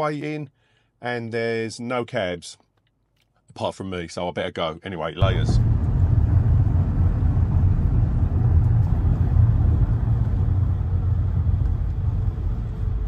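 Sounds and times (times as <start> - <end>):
taxi road rumble from inside: 5.2 - 13.0.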